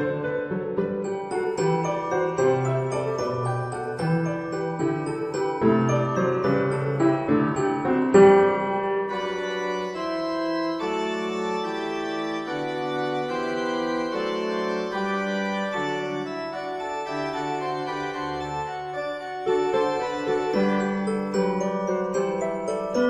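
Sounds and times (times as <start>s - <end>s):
sustained organ-like chords: 9.1s - 20.6s.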